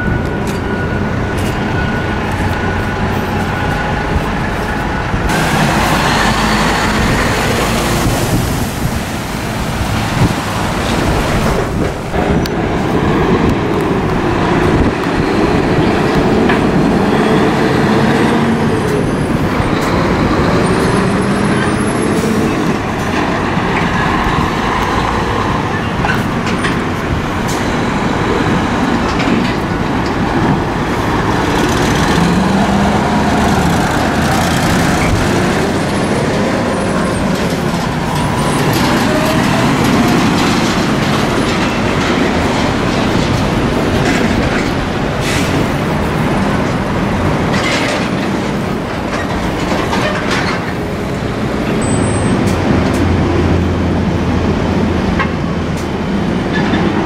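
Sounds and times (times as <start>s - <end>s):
heavy diesel truck engines: 0.0s - 57.0s
trailer frames rattling and clanking: 19.2s - 53.3s.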